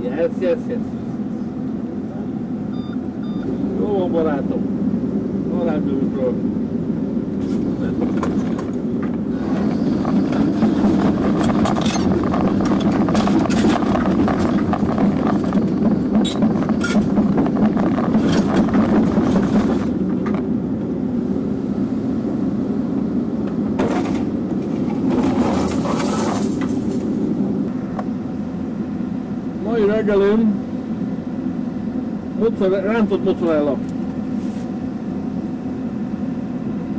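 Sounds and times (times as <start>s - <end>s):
excavator engine under load: 2.6s - 28.7s
bucket knocking and scraping: 10.0s - 20.0s, 23.8s - 27.0s.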